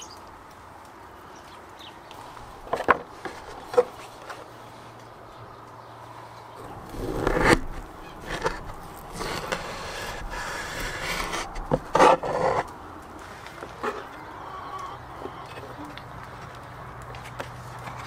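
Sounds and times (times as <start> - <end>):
knife sawing through crisp crust: 6.7 - 12.7.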